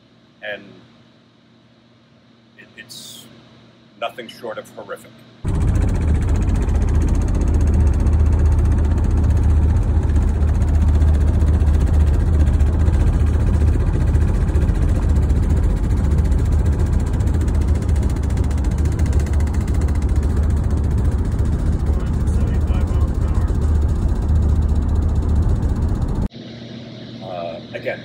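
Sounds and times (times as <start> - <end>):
car cabin road drone: 5.4 - 26.6.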